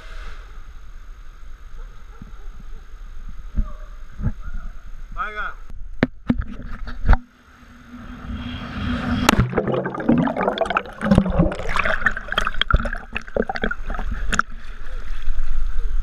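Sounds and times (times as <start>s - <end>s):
water splashing: 8.2s - 15.4s
loud water rush: 8.3s - 14.1s
bubbling gurgling water: 9.2s - 14.6s.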